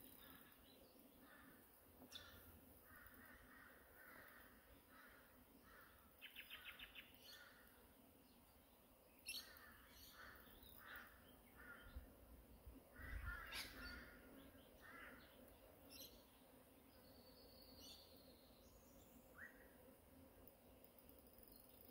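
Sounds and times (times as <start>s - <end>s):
faint bird calls: 0.0s - 7.9s, 9.2s - 12.2s, 12.9s - 16.3s.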